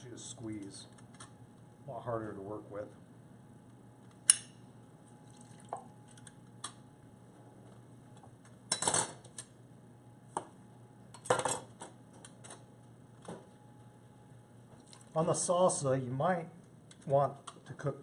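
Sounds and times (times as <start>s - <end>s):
utensils and dishes clinking: 8.7s - 9.2s.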